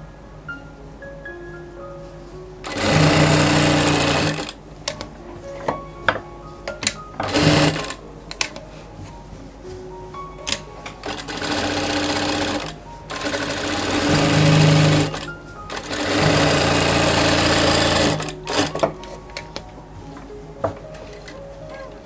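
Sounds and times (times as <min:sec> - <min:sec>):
sewing machine stitching: 0:02.6 - 0:04.6, 0:07.2 - 0:08.0, 0:11.0 - 0:18.9.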